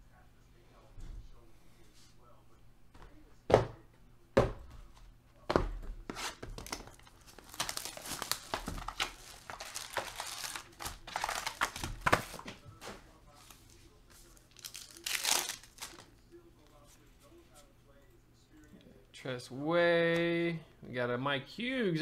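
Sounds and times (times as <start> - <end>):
foil pack tearing open: 6.6 - 12.4, 14.6 - 16.0
foil wrappers crinkling: 6.6 - 12.4, 14.3 - 16.1.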